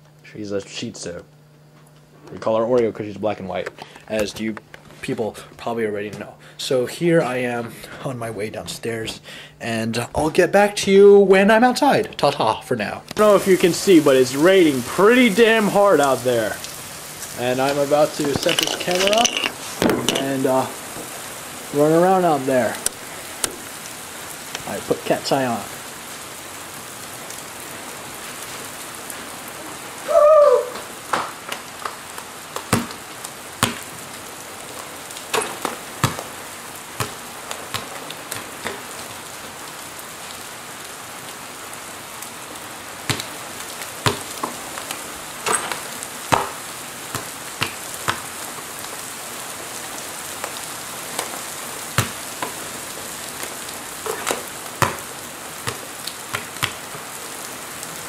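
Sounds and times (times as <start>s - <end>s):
heavy rain falling: 13.2s - 58.0s
sharp taps and drips: 33.6s - 33.9s, 47.2s - 48.3s.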